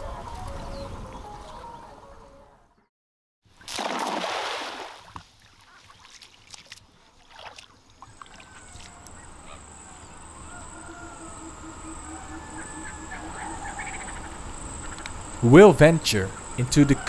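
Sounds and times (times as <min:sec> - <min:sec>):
rushing water splash: 0:03.6 - 0:05.2, 0:06.0 - 0:09.0
high-pitched insect calls: 0:08.1 - 0:17.0.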